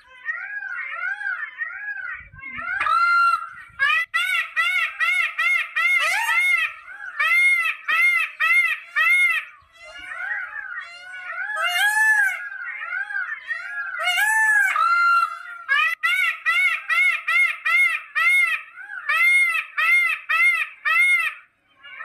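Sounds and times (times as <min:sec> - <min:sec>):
peacock calling: 0:00.0 - 0:22.0.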